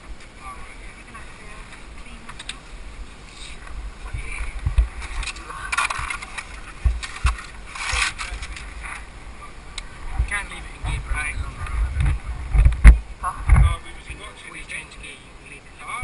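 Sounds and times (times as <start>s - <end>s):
rustling handling noise: 3.3s - 9.1s.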